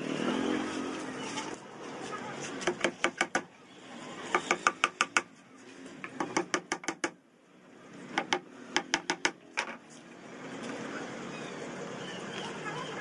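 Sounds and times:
small hammer tapping nails: 0:04.3 - 0:05.3, 0:06.0 - 0:07.2, 0:08.1 - 0:09.8.

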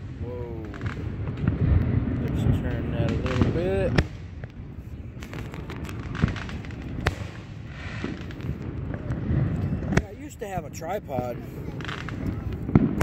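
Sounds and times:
firework shells bursting: 0:00.0 - 0:10.1
sharp firework bangs: 0:00.0 - 0:10.6, 0:11.4 - 0:13.0
faint firework pops: 0:00.6 - 0:10.2, 0:11.6 - 0:13.0.

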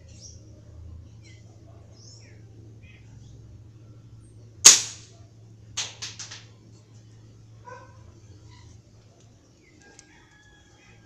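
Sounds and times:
air rifle shot crack: 0:04.7 - 0:05.1.

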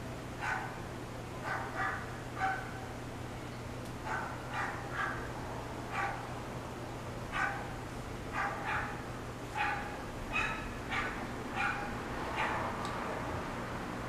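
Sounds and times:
dog barking: 0:00.4 - 0:00.8, 0:01.4 - 0:02.9, 0:04.0 - 0:05.3, 0:05.9 - 0:06.3, 0:07.3 - 0:07.7, 0:08.3 - 0:12.8.

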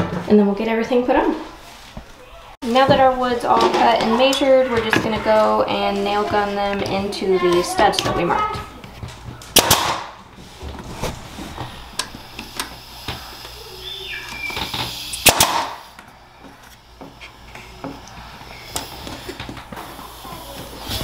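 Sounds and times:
nail gun firing: 0:09.5 - 0:10.2, 0:15.2 - 0:15.9.

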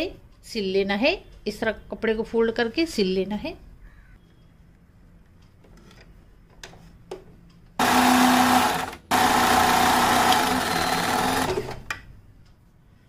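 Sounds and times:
sewing machine running: 0:07.8 - 0:11.9.

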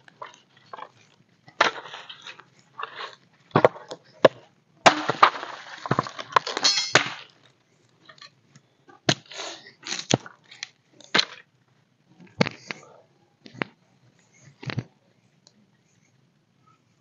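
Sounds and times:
campfire wood crackling: 0:00.0 - 0:12.8.

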